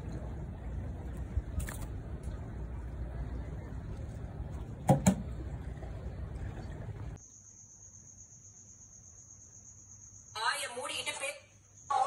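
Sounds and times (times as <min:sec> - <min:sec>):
low rumbling noise: 0:00.0 - 0:07.2
high insect trill: 0:07.2 - 0:12.0.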